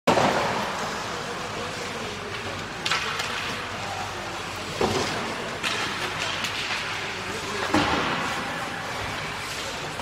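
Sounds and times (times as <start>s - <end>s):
hockey sticks hitting puck: 0.1s - 3.8s, 4.4s - 10.0s
skate blades scraping ice: 5.0s - 10.0s.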